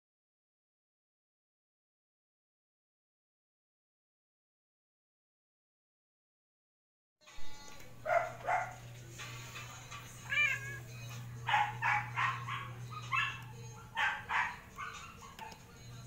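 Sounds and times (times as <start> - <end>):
low electrical hum: 7.3 - 16.0
cats meowing: 10.1 - 15.5.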